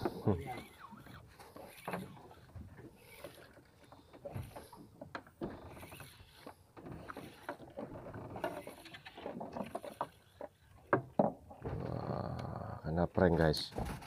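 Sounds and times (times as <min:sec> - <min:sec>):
fishing reel whirring and clicking: 0:00.0 - 0:10.9.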